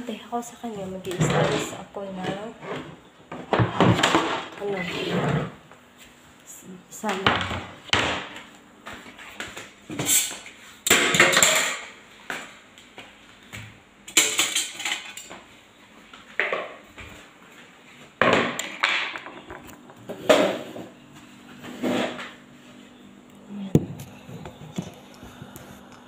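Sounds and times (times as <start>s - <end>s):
dishes and pots clattering: 9.9s - 12.0s, 14.1s - 15.5s.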